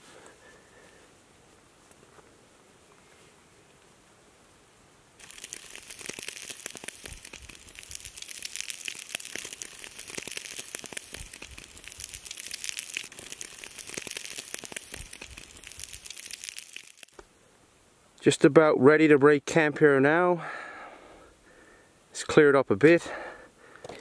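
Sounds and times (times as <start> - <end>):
bacon sizzling in a pan: 5.2 - 17.2.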